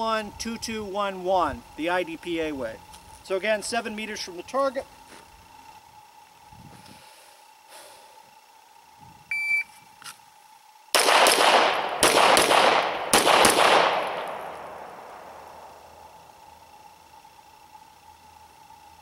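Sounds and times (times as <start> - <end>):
shot timer beep: 9.3 - 9.8
pistol shots echoing: 11.0 - 15.0.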